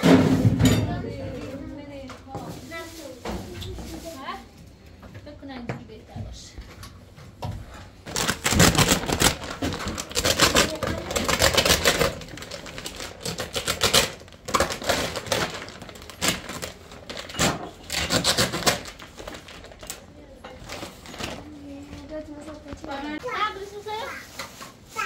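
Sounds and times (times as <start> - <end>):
plastic bag crinkling: 8.0 - 25.0.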